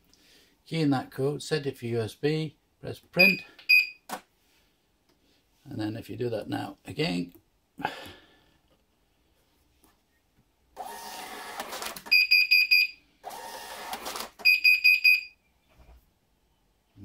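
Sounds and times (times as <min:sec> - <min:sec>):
receipt printer whirring: 0:10.8 - 0:12.0, 0:13.2 - 0:14.3
printer buzzer beeps: 0:12.1 - 0:15.4.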